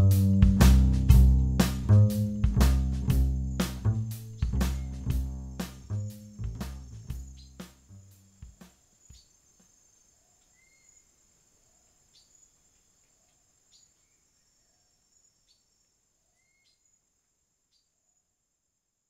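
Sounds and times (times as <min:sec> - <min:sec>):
music drum hits: 0:00.0 - 0:08.8
insect rising chirp: 0:02.9 - 0:17.4
insect chorus trilling: 0:03.4 - 0:17.0.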